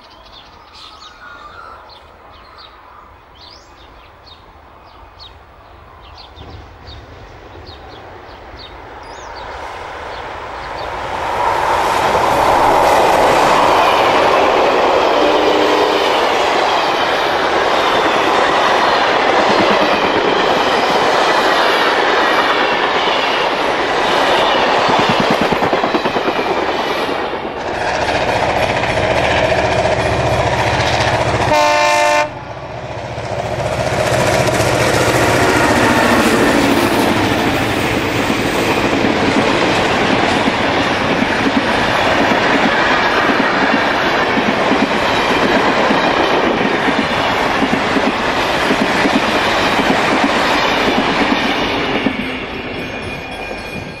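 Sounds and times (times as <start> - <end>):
train rolling past: 1.8 - 54.0
train horn blast: 15.1 - 16.4, 30.1 - 32.6.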